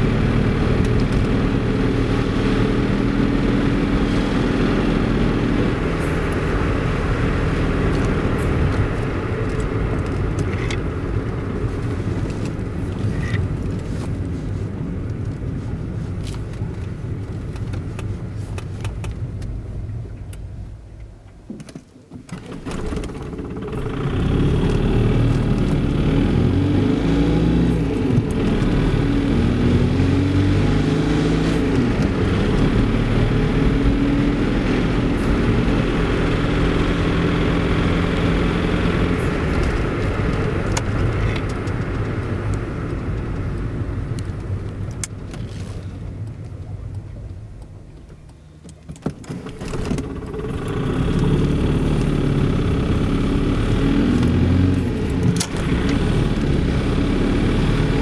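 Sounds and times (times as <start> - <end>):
tyre and wind noise: 0.0 - 58.0
diesel engine running: 22.5 - 46.8, 49.3 - 58.0.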